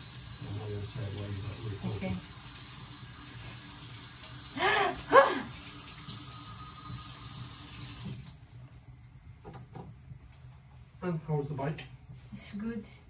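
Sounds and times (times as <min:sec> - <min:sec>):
tap running into sink: 0:05.8 - 0:08.4.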